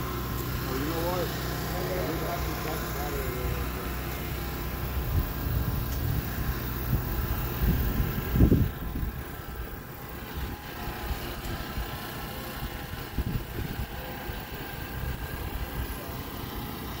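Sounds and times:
machinery humming: 0.0s - 17.0s
wind on microphone: 5.0s - 9.6s, 12.7s - 14.0s.

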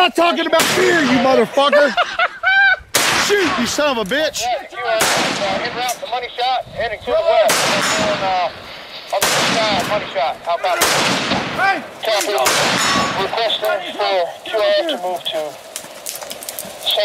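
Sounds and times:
rifle shots: 3.0s - 3.6s, 4.9s - 6.1s, 7.4s - 13.5s.

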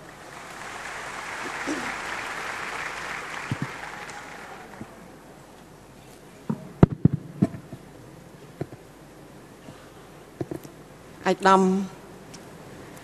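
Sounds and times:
audience applause: 0.0s - 5.2s.

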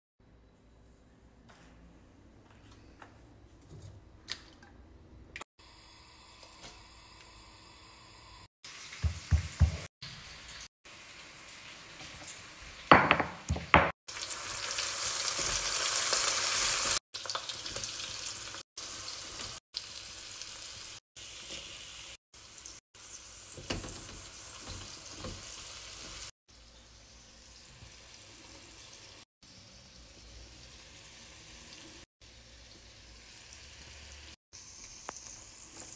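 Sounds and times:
onions sizzling in hot oil: 5.6s - 12.9s, 14.1s - 35.9s.

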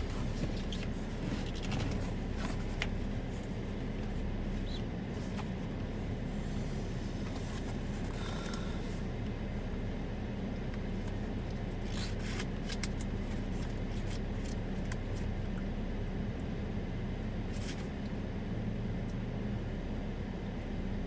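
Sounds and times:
crackling rustles: 0.0s - 5.6s
car engine idling: 0.0s - 21.0s.

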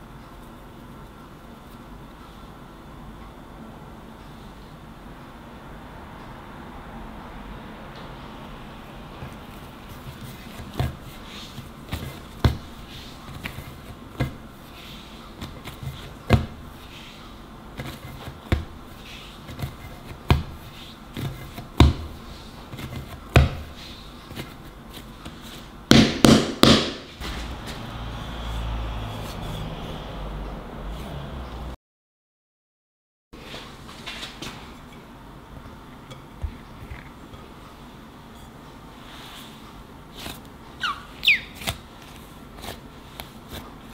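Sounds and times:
dough thudding on board: 15.4s - 16.7s, 17.8s - 18.8s, 19.5s - 23.8s, 25.9s - 27.4s
dough slaps: 17.8s - 27.8s.

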